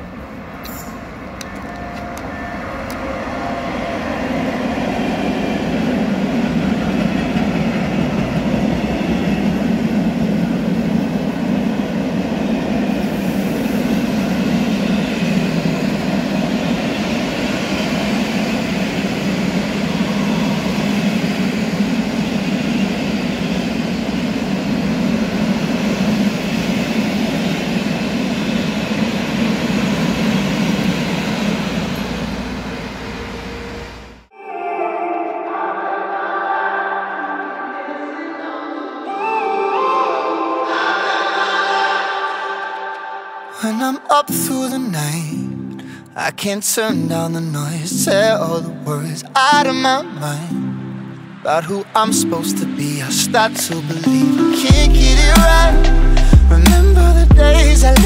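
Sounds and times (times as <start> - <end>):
freight train wheels on rails: 0.0 - 34.3.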